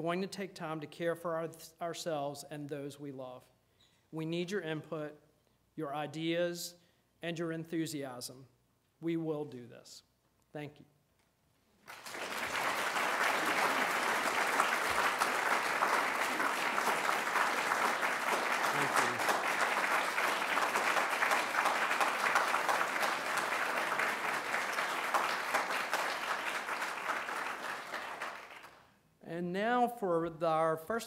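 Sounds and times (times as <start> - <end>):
audience applauding: 11.8 - 28.8.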